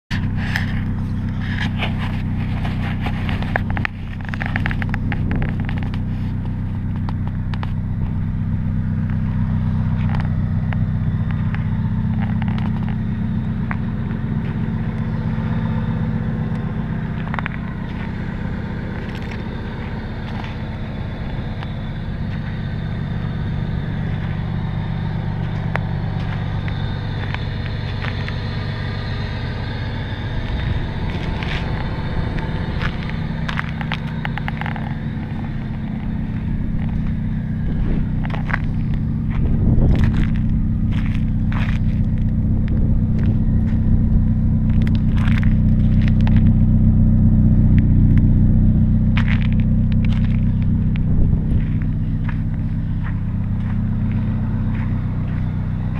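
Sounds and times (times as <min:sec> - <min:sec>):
car engine idling: 0:00.0 - 0:55.9
light clicks and scrapes: 0:00.1 - 0:07.8.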